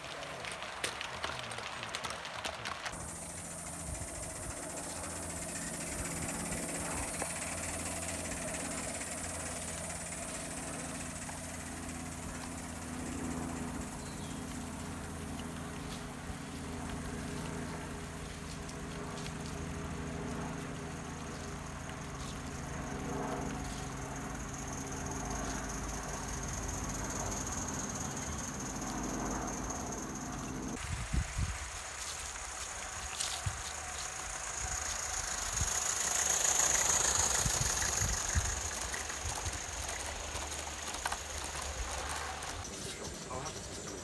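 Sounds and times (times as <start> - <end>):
model train running on rails: 0.0 - 44.0.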